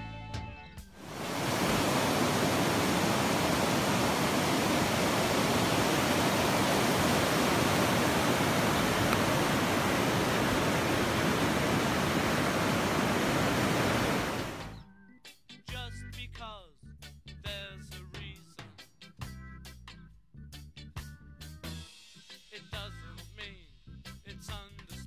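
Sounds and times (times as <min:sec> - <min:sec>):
creek water roaring: 0:01.0 - 0:14.7.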